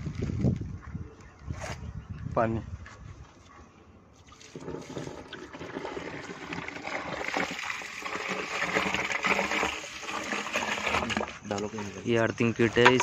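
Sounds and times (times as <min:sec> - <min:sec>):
water pouring from bucket: 0:04.2 - 0:13.0.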